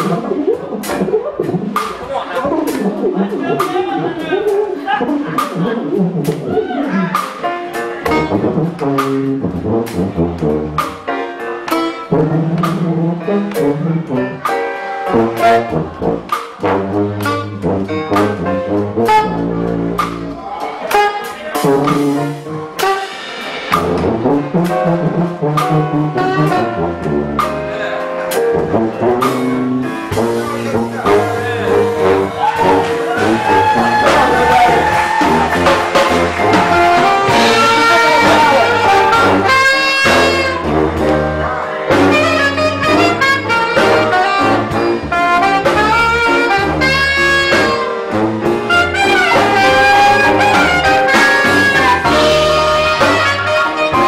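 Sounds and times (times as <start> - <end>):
sousaphone bass line: 0.0 - 7.4
saxophone melody: 0.0 - 23.2, 23.9 - 54.0
drums: 0.0 - 54.0.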